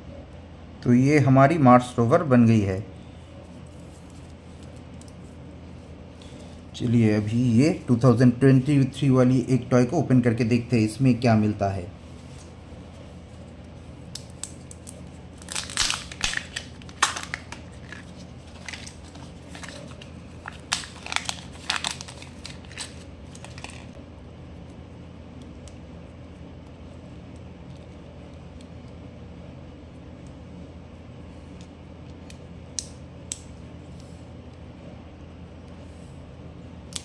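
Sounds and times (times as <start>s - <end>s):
steady low hum: 0.0s - 37.0s
plastic crinkling and crackling: 14.2s - 24.0s.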